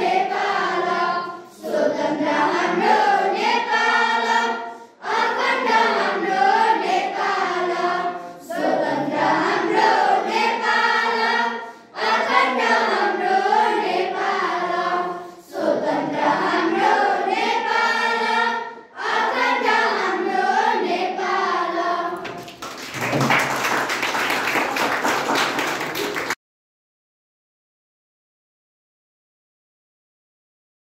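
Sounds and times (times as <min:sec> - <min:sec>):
children singing in unison: 0:00.0 - 0:22.3
children clapping: 0:22.2 - 0:26.4.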